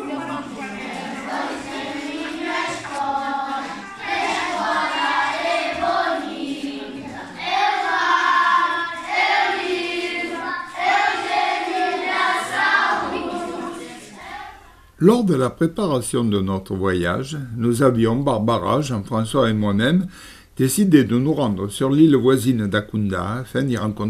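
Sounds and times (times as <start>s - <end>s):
group of people singing: 0.0s - 14.8s.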